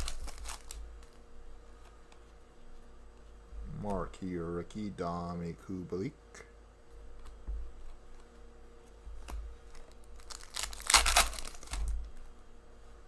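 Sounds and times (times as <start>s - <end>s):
cards rustling and swishing: 0.0s - 4.1s, 7.1s - 12.2s.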